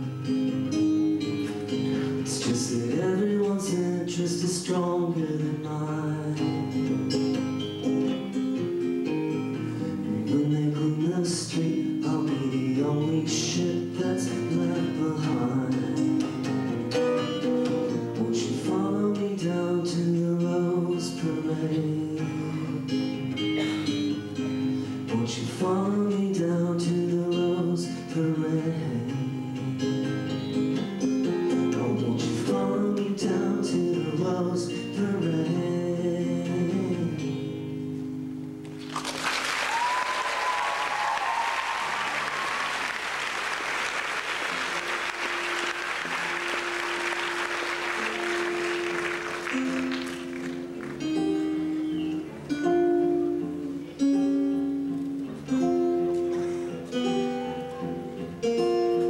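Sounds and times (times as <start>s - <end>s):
acoustic guitar through speakers: 0.0s - 59.0s
audience applause and cheering: 38.7s - 51.3s.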